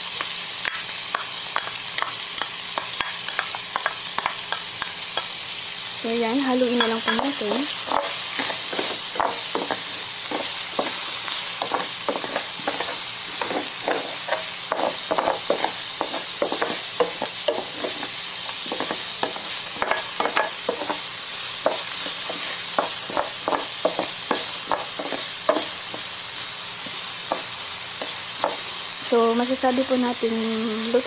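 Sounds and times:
onions sizzling in oil: 0.0 - 31.0
wooden spoon scraping a pan: 6.8 - 21.0, 21.6 - 26.1.

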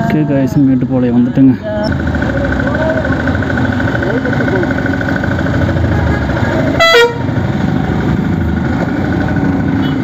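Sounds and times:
motorcycle engine running: 0.0 - 10.0
vehicle horn toot: 6.8 - 7.3, 9.8 - 10.0.

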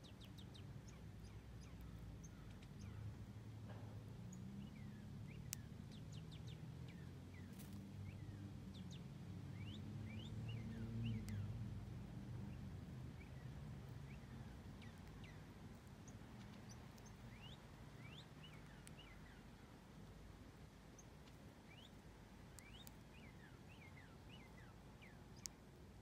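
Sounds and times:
faint bird chirps: 0.0 - 11.7, 12.3 - 19.8, 20.9 - 25.7
low outdoor rumble: 0.0 - 26.0
sharp tick: 5.4 - 5.7, 22.5 - 23.0, 25.4 - 25.6.

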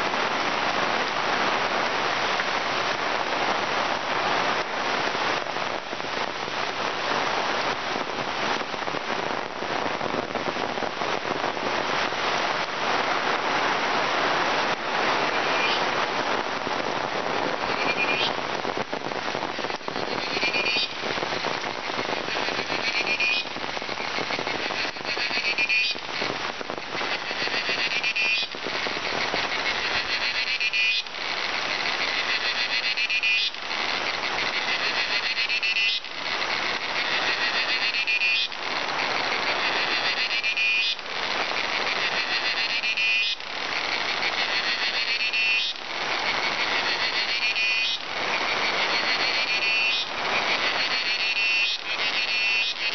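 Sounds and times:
rain on foliage: 0.0 - 52.9
buzzing pulsed animal call: 17.7 - 18.4, 20.0 - 21.1, 22.0 - 41.0.

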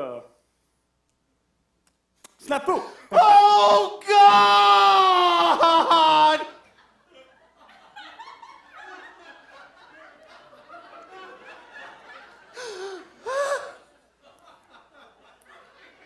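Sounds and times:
mock sobbing wails: 3.0 - 6.6
audience laughing: 5.6 - 16.0.

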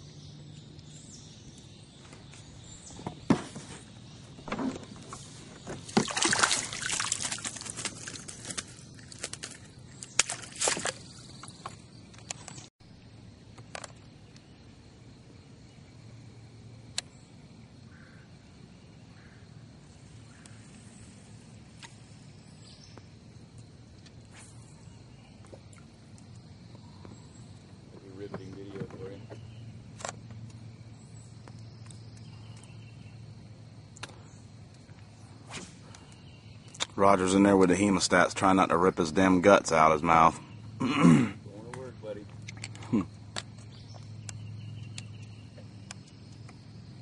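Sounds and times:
insect buzz: 0.0 - 47.0
water splashing against boat: 3.2 - 11.8.

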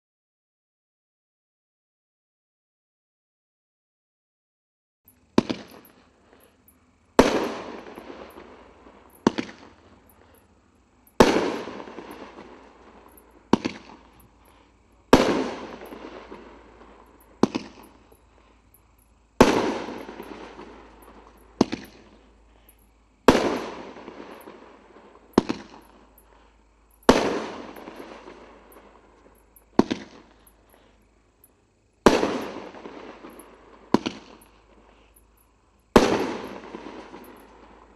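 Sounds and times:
fireworks bangs: 5.3 - 10.4, 11.1 - 18.7, 19.3 - 22.6, 23.2 - 31.0, 31.8 - 35.1, 35.9 - 37.9.

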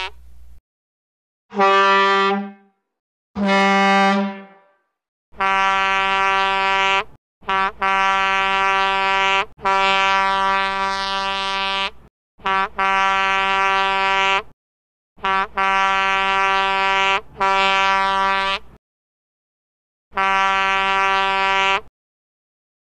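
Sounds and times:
truck air horn blasts: 1.5 - 2.7, 3.4 - 4.8, 5.4 - 14.5, 15.2 - 18.7, 20.1 - 21.9.

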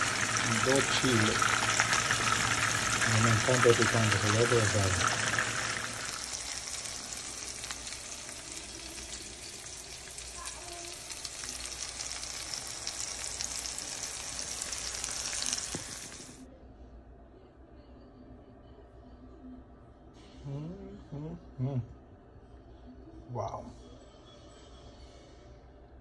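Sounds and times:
hot oil sizzling and crackling: 0.0 - 16.4.

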